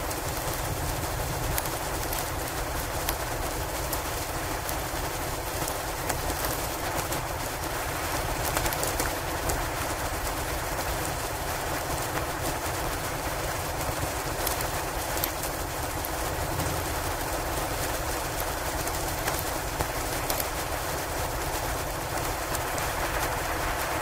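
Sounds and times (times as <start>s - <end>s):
log fire crackling: 0.1s - 24.0s
blizzard wind rushing: 15.8s - 24.0s.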